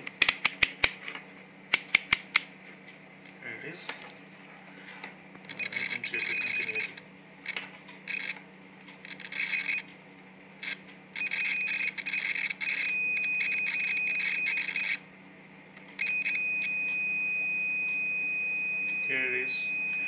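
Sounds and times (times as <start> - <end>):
multimeter continuity beeping: 5.4 - 8.4, 9.0 - 9.9, 10.6 - 15.0, 16.0 - 20.0.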